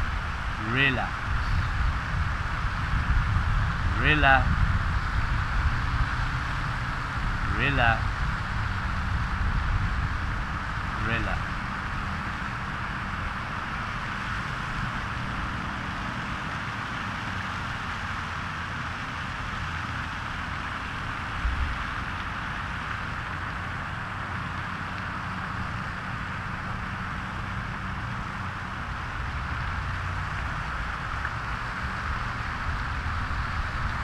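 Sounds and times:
even hiss: 0.0 - 2.7.

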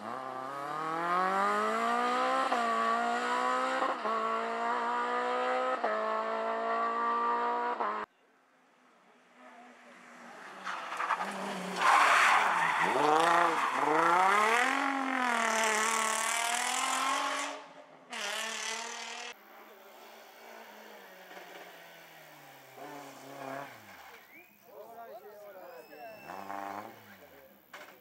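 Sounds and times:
distant rally car engine: 0.0 - 28.0
rally car engine racing past: 9.2 - 24.4, 26.2 - 27.3.

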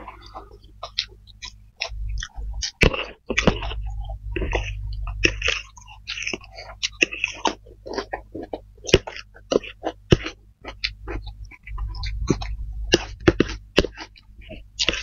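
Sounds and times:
low rumble: 0.0 - 5.7
chewing clicks: 0.1 - 15.0.

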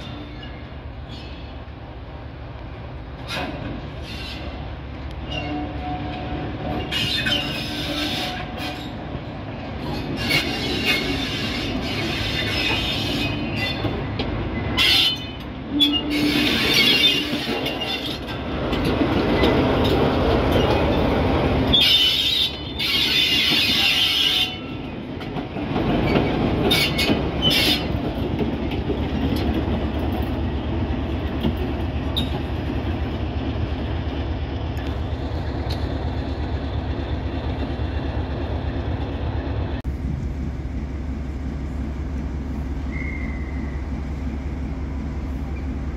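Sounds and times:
diesel locomotive engine: 0.0 - 45.9
wheel squeal on track: 6.8 - 9.0, 42.9 - 43.8.

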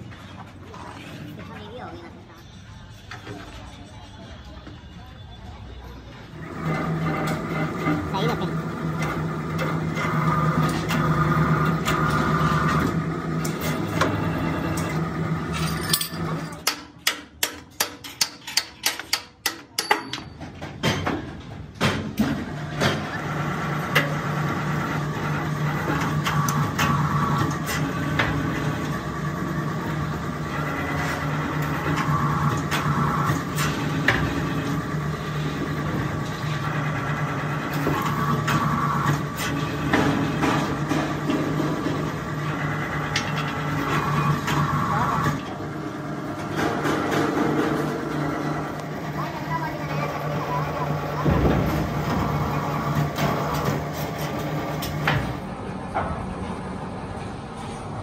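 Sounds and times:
hydraulic power unit droning: 22.2 - 58.0.

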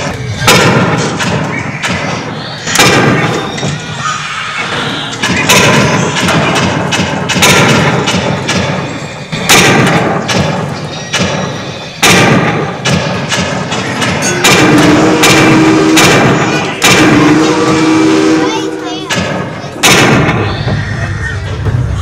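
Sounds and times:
rifle gunshots: 0.4 - 3.5, 5.2 - 17.7, 19.2 - 20.5.

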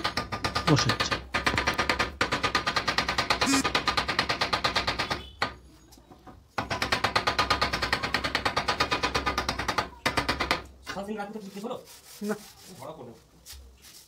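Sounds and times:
tapping on a wooden block: 0.0 - 5.6.

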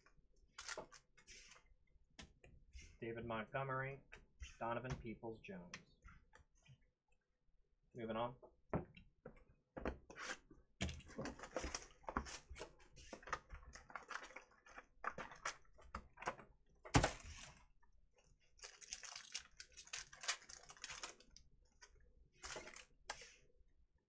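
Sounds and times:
foil pack tearing and crinkling: 18.6 - 21.3.

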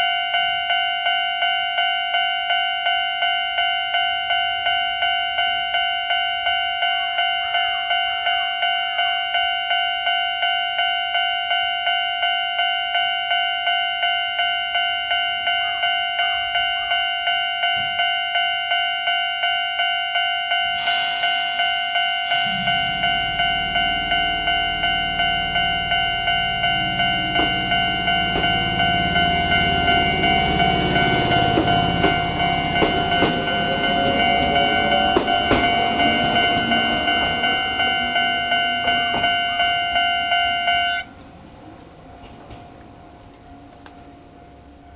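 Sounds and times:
level crossing bell ringing: 0.0 - 41.1
train wheels clicking on rails: 20.7 - 40.2, 41.1 - 44.1
train rumbling: 20.7 - 44.9.

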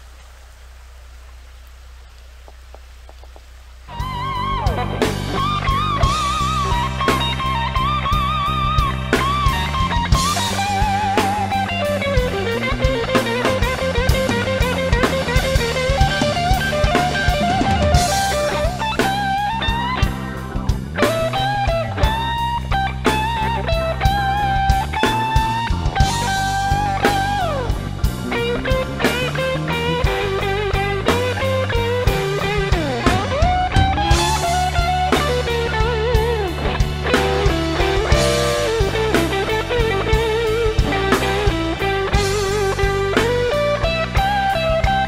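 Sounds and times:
rock music: 3.7 - 45.0
electric guitar lead melody: 3.9 - 45.0.

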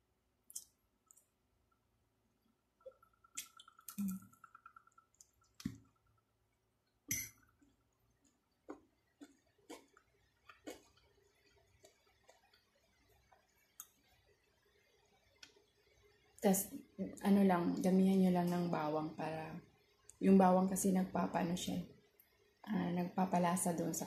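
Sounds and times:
chewing and mouth clicks: 8.1 - 12.7.

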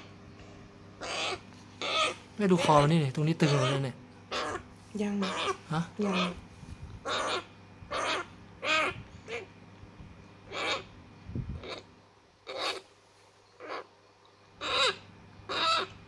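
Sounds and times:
parrot chick begging calls: 1.0 - 6.4, 7.0 - 9.5, 10.4 - 10.9, 11.6 - 12.9, 13.6 - 13.9, 14.6 - 16.0.

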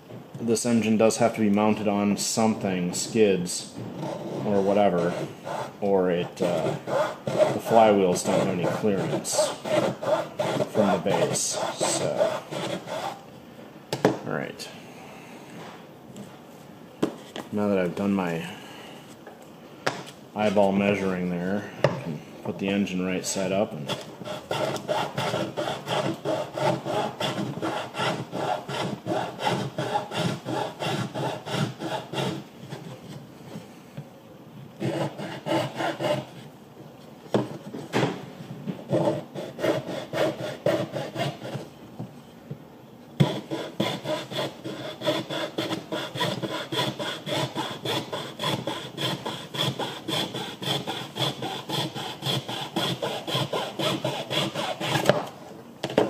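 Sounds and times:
hand saw cutting wood: 6.4 - 13.2, 23.9 - 32.4, 34.8 - 36.4, 38.9 - 41.6, 43.2 - 55.2.

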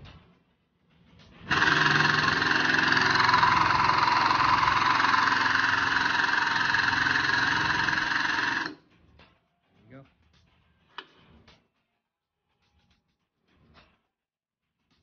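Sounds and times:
air pump hissing buzz: 1.5 - 8.8.

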